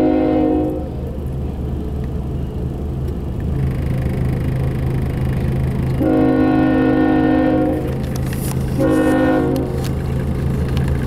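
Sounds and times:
diesel locomotive rumbling: 0.0 - 11.0.

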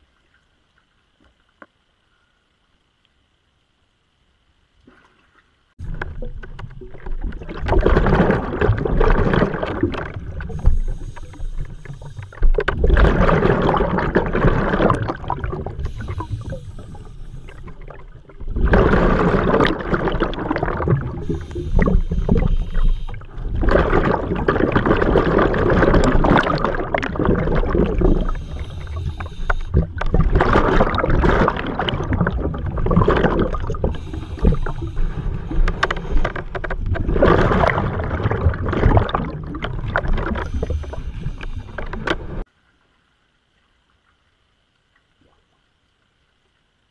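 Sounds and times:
exhaled bubbles gurgling: 5.8 - 42.5
regulator inhalation hiss: 10.5 - 12.5, 15.8 - 17.8, 21.2 - 23.4, 28.1 - 29.9, 33.8 - 36.2.

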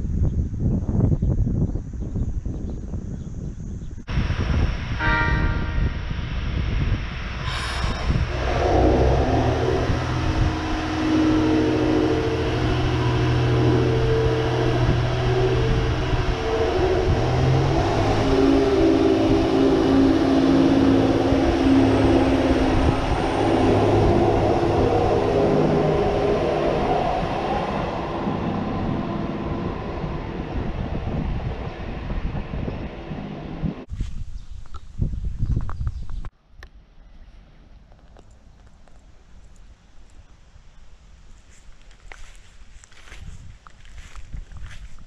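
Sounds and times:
railcar engine humming: 4.0 - 33.9
faint rising whine: 4.1 - 33.9.

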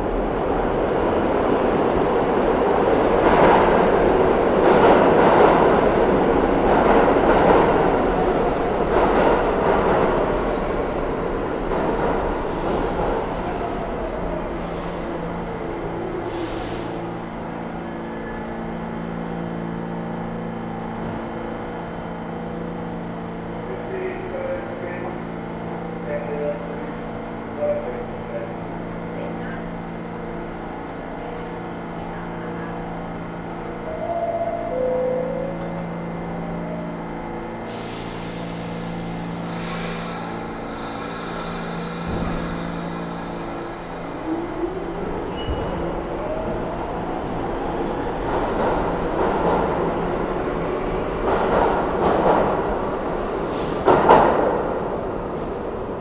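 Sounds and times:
subway train rolling: 0.0 - 56.0
train doors opening hiss: 11.4 - 15.3, 16.1 - 17.2, 37.6 - 44.1, 50.6 - 55.5
air brakes hissing: 14.5 - 15.3, 16.2 - 17.1, 37.6 - 43.5, 53.4 - 54.0.

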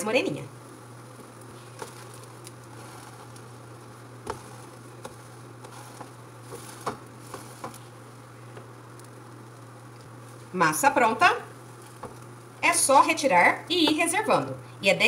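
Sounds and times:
steady low hum: 0.0 - 15.0
pancake sizzling in a pan: 0.6 - 12.6
spatula tapping pancake: 4.2 - 7.8, 11.9 - 12.2.

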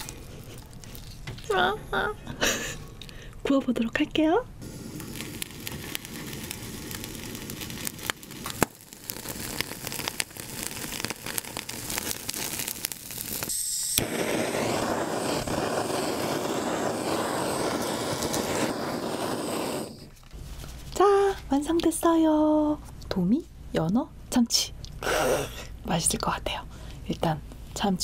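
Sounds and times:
fish heads crackling on grill: 4.6 - 20.2
kitchen torch hissing: 4.6 - 20.2.

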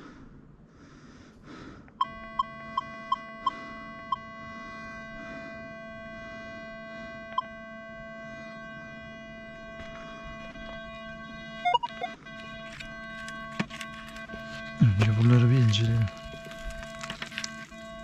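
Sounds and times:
steady electronic tone: 2.0 - 18.0
metal detector short beeps: 11.6 - 12.2.

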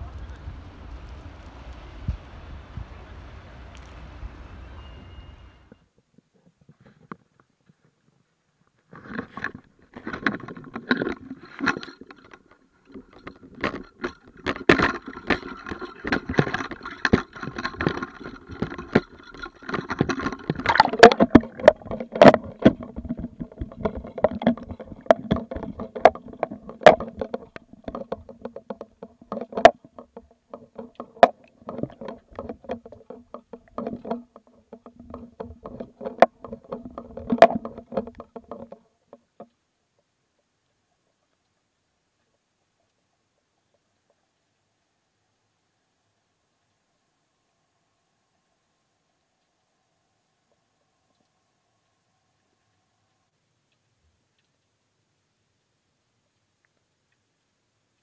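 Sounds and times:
faint steady hum: 0.0 - 58.0
water sloshing against housing: 8.9 - 39.5
muffled knocks and clicks: 9.0 - 39.5.

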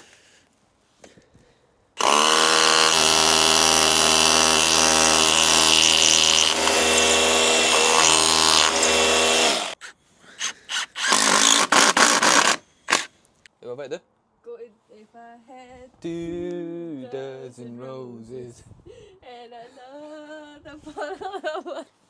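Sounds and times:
hammer drill drilling into wall: 2.0 - 9.8, 10.4 - 13.1
impact driver driving screw: 2.0 - 9.8, 10.4 - 13.1.

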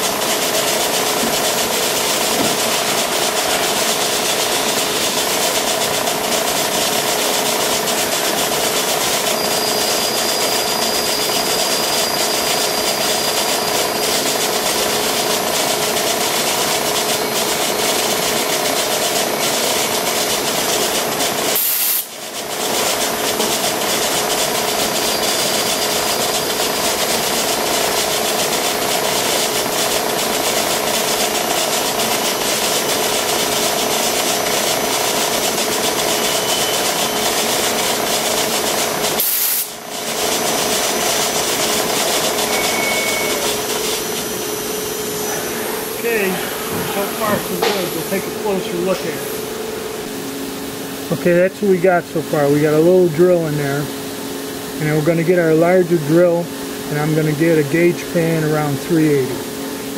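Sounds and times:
drilling machine drilling into steel: 0.0 - 50.0
steady machine drone: 0.0 - 59.9.

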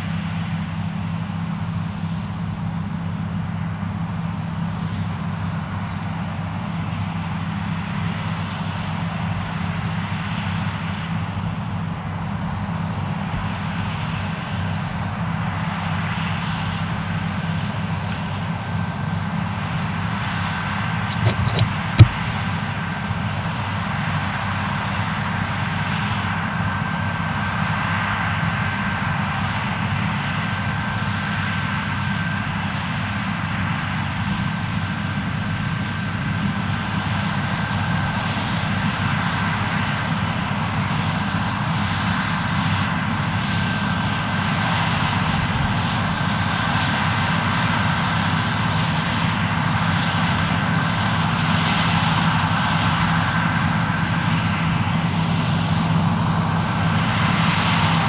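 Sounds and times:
combine harvester engine drone: 0.0 - 58.0.

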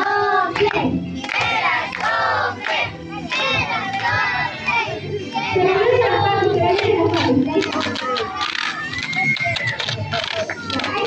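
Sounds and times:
woman singing through microphone: 0.0 - 1.0, 5.5 - 7.9
group singing: 0.0 - 7.6.

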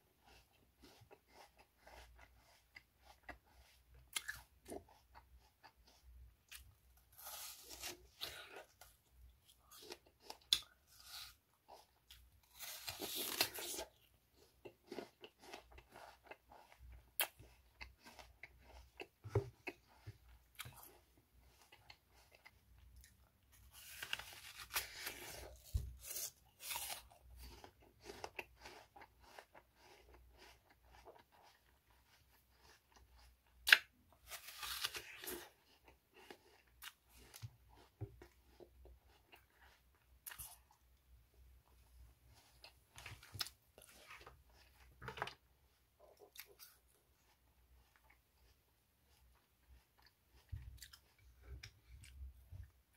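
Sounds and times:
apple crunching: 0.3 - 21.0, 21.6 - 40.8.

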